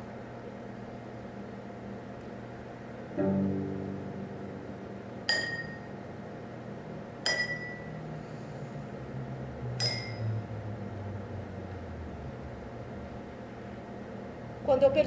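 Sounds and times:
low sustained drone: 7.6s - 13.3s.

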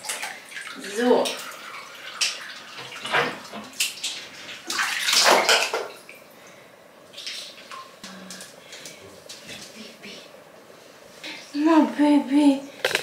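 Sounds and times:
shower water splashing in a bathtub: 0.0s - 10.2s.

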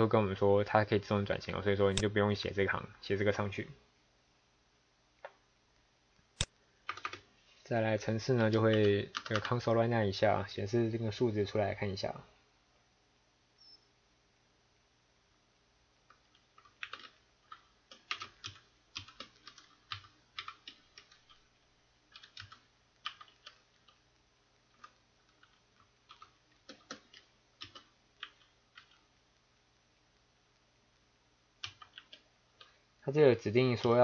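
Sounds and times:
computer keyboard typing: 6.9s - 7.3s, 8.4s - 9.7s, 16.1s - 21.4s, 22.1s - 24.0s, 24.7s - 29.1s, 31.6s - 32.7s.

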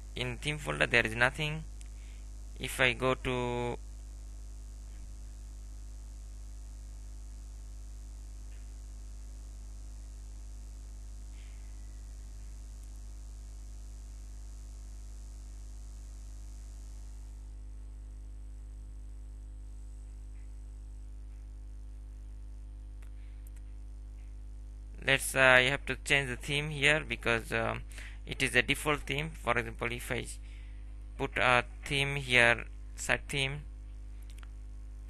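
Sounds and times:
electrical mains hum and buzz: 0.0s - 35.0s
faint clicks: 23.0s - 24.3s, 34.2s - 34.6s.

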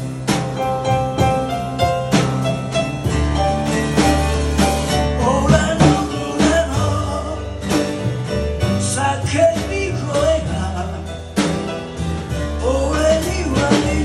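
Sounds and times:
acoustic guitar: 0.0s - 14.0s
drum kit: 0.0s - 14.0s
upright double bass: 0.0s - 14.0s
man singing: 5.0s - 11.6s, 12.4s - 14.0s.

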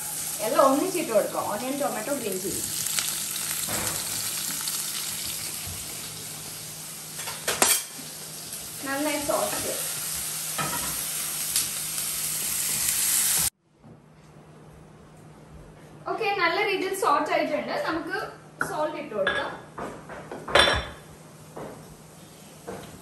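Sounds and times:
vegetables sizzling in a pan: 0.0s - 13.5s.

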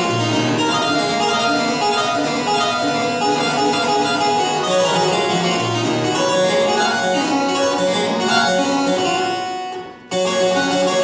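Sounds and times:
harpsichord playing: 0.0s - 11.0s.

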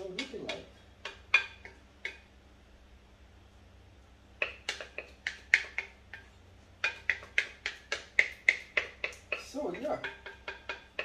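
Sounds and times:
spatula tapping a mixing bowl: 0.0s - 2.3s, 4.4s - 11.0s.

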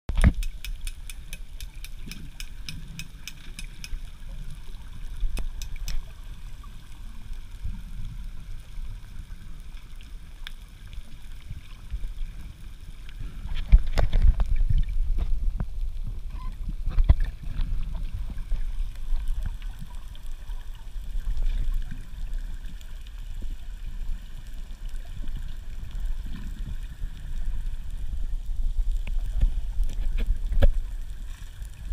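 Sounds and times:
underwater rumble of moving water: 0.1s - 31.9s
water splashing and sloshing: 0.1s - 31.9s
faint rapid clicking: 0.2s - 4.2s.

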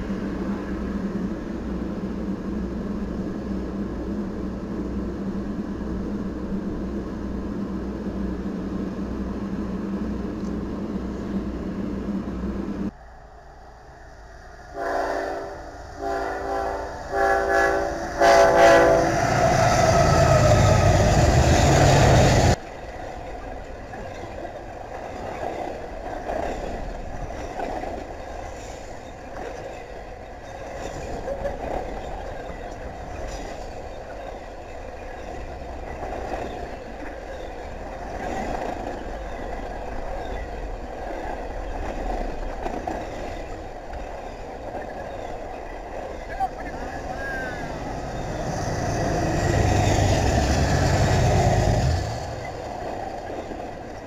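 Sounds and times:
locomotives passing loudly: 14.0s - 22.6s, 44.4s - 54.0s
locomotive horn blasts: 14.8s - 20.9s
freight cars rumbling and clattering: 19.1s - 54.0s.

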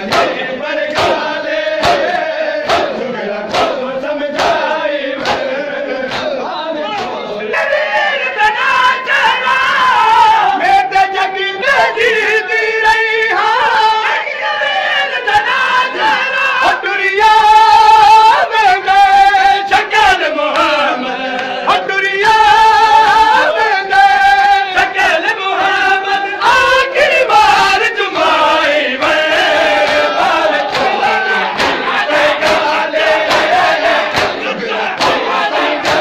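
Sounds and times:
chest-beating slaps: 0.0s - 6.4s, 29.7s - 36.0s
men chanting in unison: 0.0s - 36.0s.

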